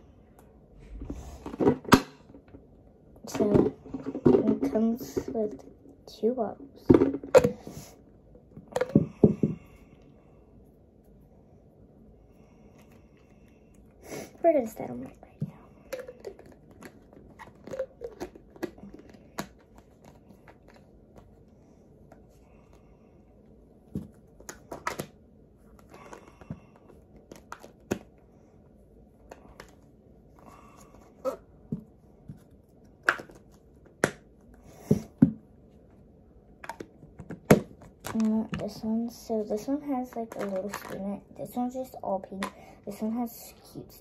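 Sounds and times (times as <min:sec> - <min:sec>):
plastic bottles clicking and knocking: 0:03.2 - 0:05.6, 0:06.9 - 0:07.7, 0:08.6 - 0:09.6, 0:15.4 - 0:20.8, 0:39.6 - 0:41.1.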